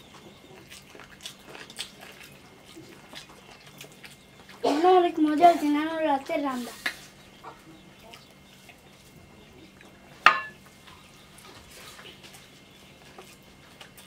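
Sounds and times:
hands working rice on plates: 6.5s - 7.2s.

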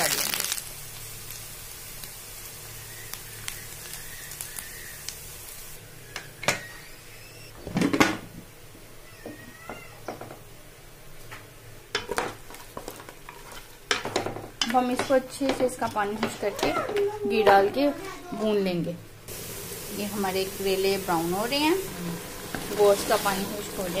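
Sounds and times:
vegetables sizzling in oil: 0.0s - 7.3s, 19.3s - 24.0s
cat meowing: 9.0s - 10.1s.

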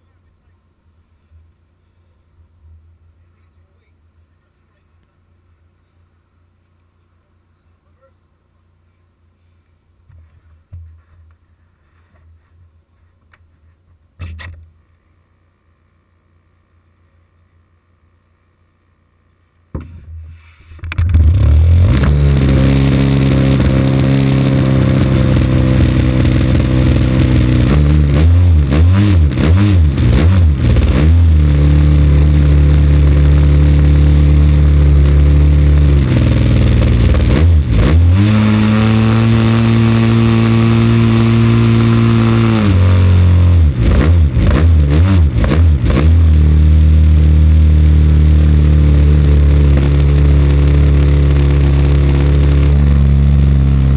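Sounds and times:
model plane engine running: 21.6s - 28.5s, 30.7s - 37.3s, 38.4s - 43.6s, 47.0s - 53.9s.

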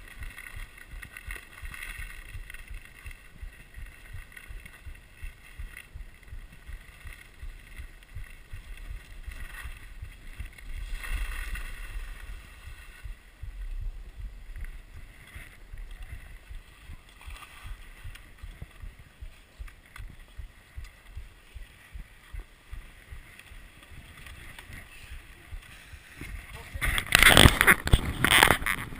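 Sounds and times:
skis sliding over packed snow: 0.0s - 28.9s
wind buffeting microphone: 0.0s - 28.9s.

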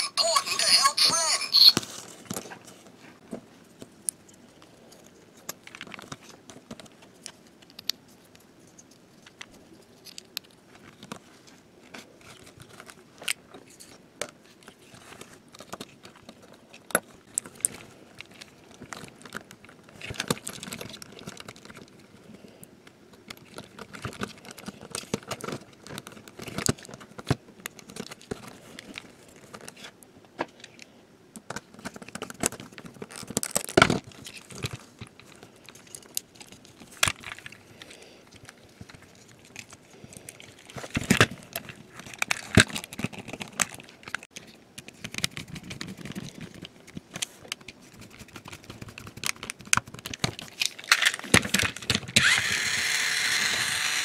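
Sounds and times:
plastic parts clicking and rustling: 4.1s - 54.0s
screwdriver driving a screw: 52.2s - 54.0s.

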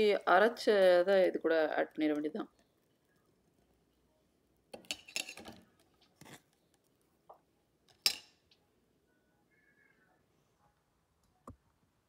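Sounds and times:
utensil clinking against pot: 8.0s - 8.3s.

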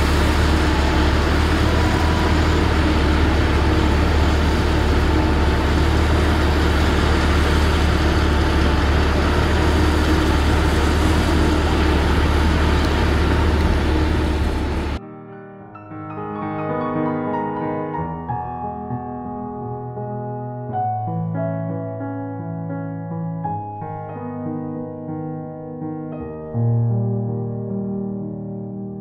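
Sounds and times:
drilling rig engine drone: 0.0s - 15.0s.

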